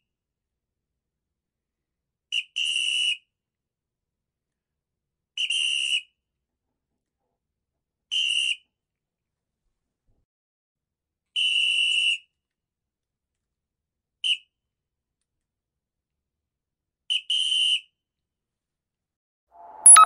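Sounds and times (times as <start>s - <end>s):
referee's whistle blasts: 19.6s - 20.0s.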